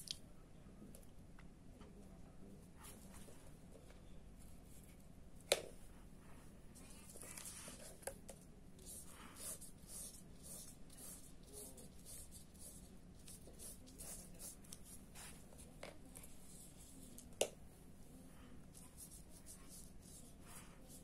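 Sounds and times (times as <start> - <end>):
paintbrush swishing on paper: 8.8 - 17.3, 17.9 - 21.0.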